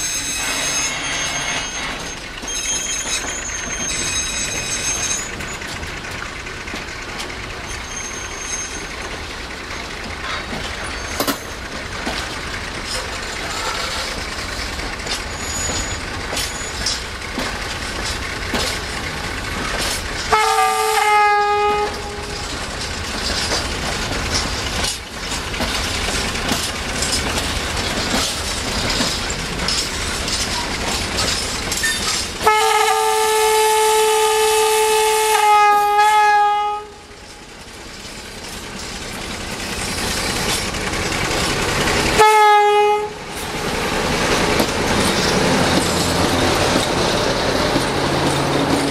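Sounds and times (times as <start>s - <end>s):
freight wagons with clicking wheels: 0.0s - 34.4s, 35.2s - 48.9s
diesel engine running: 4.6s - 33.0s, 37.0s - 48.9s
locomotive horn blasts: 20.3s - 22.5s, 32.4s - 37.1s, 42.2s - 43.2s.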